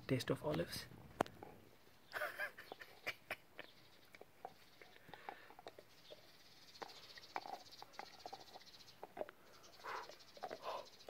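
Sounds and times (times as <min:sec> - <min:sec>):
dog gnawing on wood: 0:04.2 - 0:10.8.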